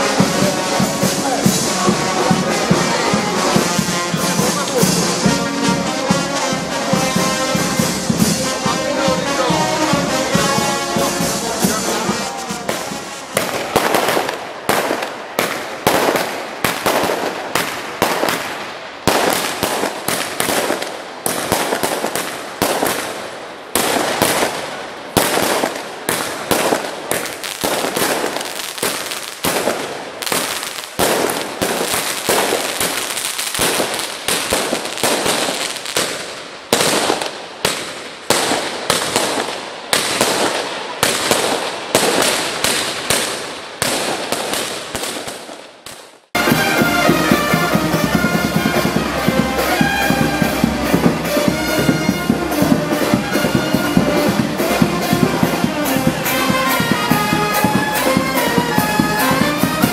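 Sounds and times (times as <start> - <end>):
brass band playing: 0.0 - 17.3, 46.3 - 59.9
fireworks bangs: 0.0 - 59.9.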